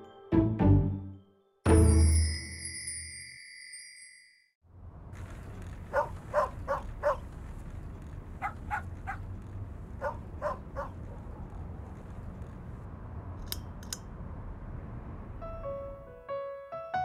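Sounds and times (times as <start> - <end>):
bright chime ringing: 1.0 - 4.5
low outdoor rumble: 4.6 - 16.2
dog barking: 5.9 - 7.3, 8.4 - 9.3, 10.0 - 11.6.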